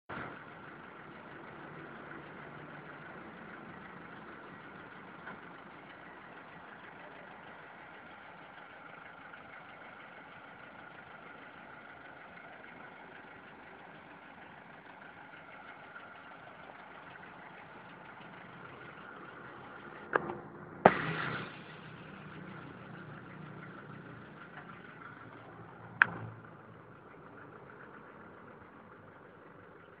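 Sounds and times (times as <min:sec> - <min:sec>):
vehicle engine idling: 0:00.1 - 0:30.0
sharp knock: 0:20.2 - 0:21.5.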